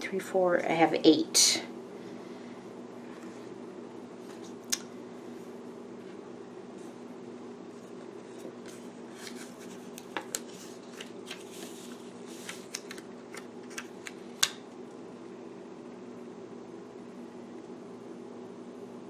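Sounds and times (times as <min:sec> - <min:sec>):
steady low hum: 0:00.0 - 0:19.0
paper rustling: 0:07.8 - 0:14.0.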